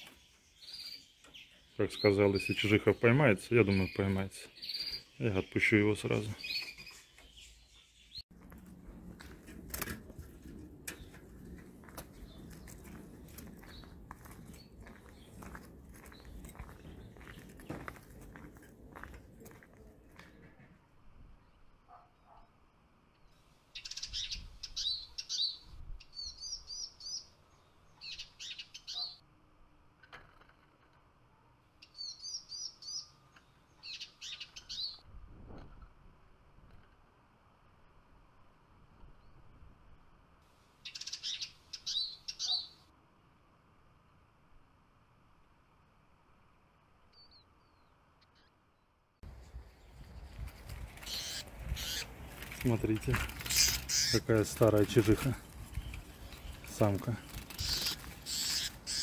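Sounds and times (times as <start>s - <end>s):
songbird chirps: 0.0s - 9.4s, 10.1s - 29.3s, 30.2s - 35.1s, 40.7s - 42.9s, 46.7s - 59.0s
rustling and handling noise: 8.3s - 20.6s, 49.3s - 58.9s
birds whistling: 40.9s - 42.8s, 51.0s - 52.2s, 53.4s - 54.3s, 57.3s - 59.0s.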